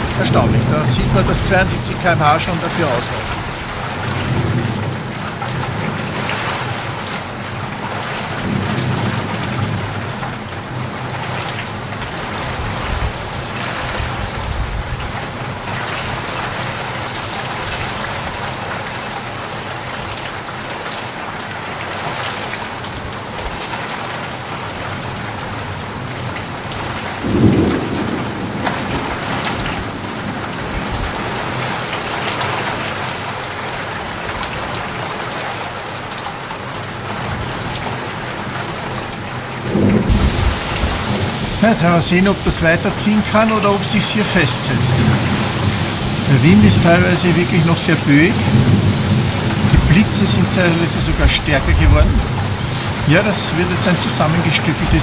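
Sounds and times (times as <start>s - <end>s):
thunder rumbling: 0.0s - 5.0s, 27.2s - 31.2s, 39.6s - 55.0s
heavy rain: 0.0s - 55.0s.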